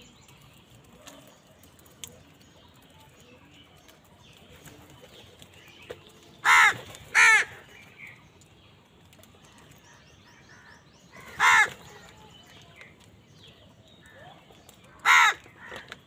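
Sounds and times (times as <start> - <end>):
crows cawing: 6.4 - 7.8, 10.5 - 12.1, 14.9 - 16.0.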